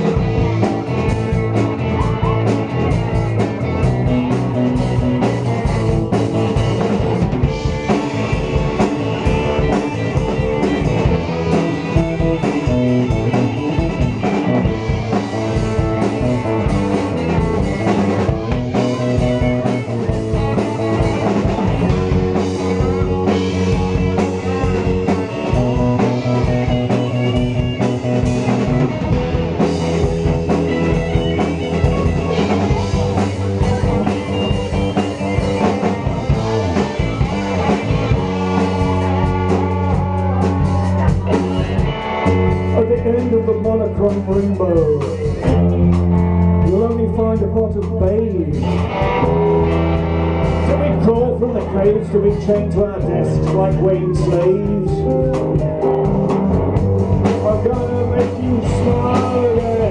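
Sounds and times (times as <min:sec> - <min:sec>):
live rock band: 0:00.0 - 0:59.9.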